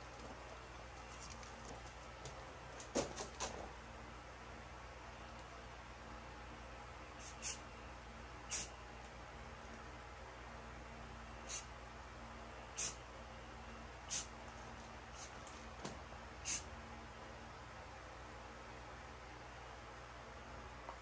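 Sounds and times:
spray can hissing bursts: 0:07.2 - 0:07.6, 0:08.5 - 0:08.7, 0:12.8 - 0:13.0, 0:16.4 - 0:16.6.

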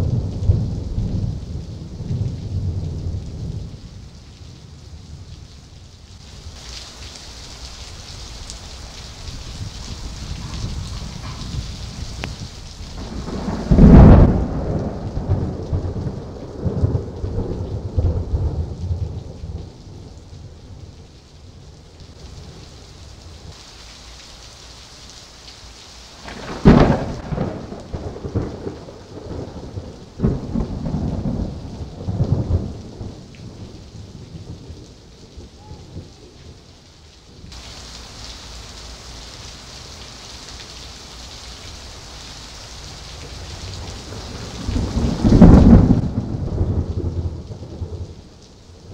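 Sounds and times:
heavy rain: 0:00.0 - 0:48.9
thunder crash and rumble: 0:13.0 - 0:19.2, 0:26.2 - 0:33.1, 0:43.8 - 0:48.0.

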